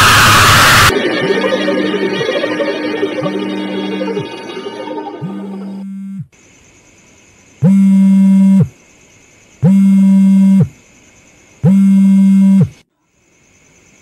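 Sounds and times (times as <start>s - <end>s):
mobile phone vibrating buzz: 5.2s - 6.4s, 7.6s - 8.7s, 9.6s - 10.7s, 11.6s - 12.8s.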